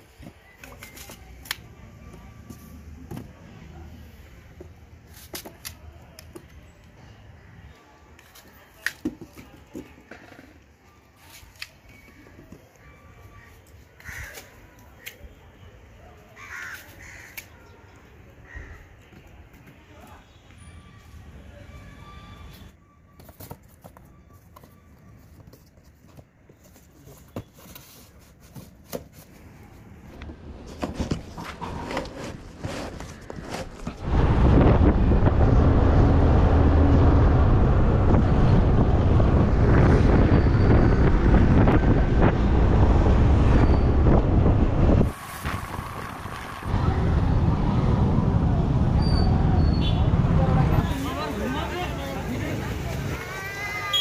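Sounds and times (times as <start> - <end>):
outdoor background noise: 0.0 - 54.0
cardboard box being handled: 23.2 - 29.7
low steady rumble: 34.0 - 50.8.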